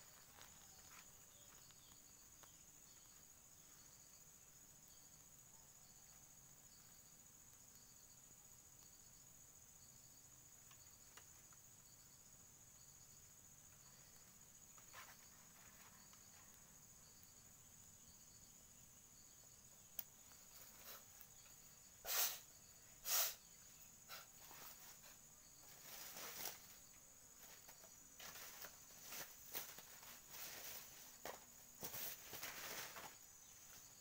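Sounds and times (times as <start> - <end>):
insects droning: 0.0 - 34.0
rustling: 14.6 - 16.8, 24.1 - 34.0.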